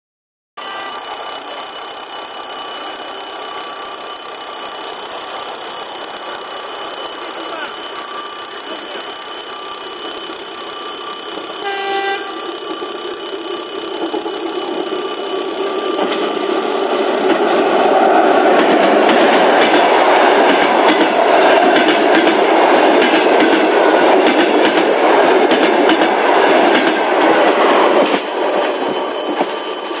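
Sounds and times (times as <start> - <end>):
electric train passing: 0.6 - 30.0
train horn toot: 11.6 - 12.5.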